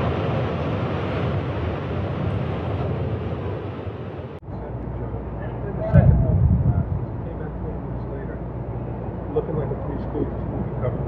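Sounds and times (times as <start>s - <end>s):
rushing wind-like noise: 0.0s - 4.4s, 5.2s - 11.0s
low rumble: 5.7s - 9.3s.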